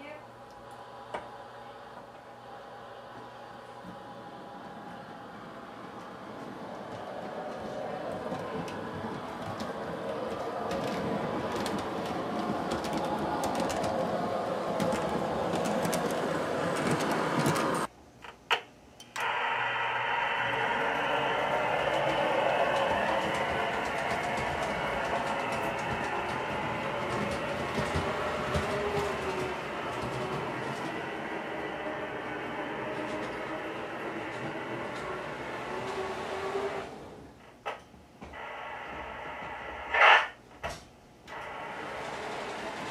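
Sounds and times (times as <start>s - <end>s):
model train wheels clicking: 6.4s - 17.9s, 20.4s - 37.0s, 41.3s - 42.9s.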